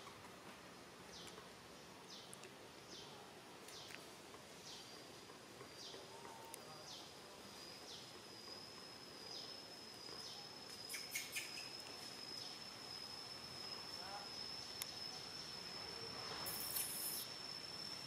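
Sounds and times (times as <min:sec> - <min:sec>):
high insect whine: 0:04.5 - 0:18.0.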